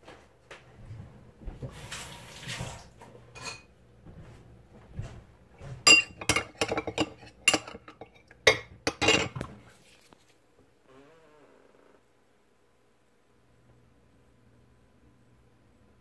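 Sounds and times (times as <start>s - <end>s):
spoon clinking against a dish: 5.9s - 9.4s.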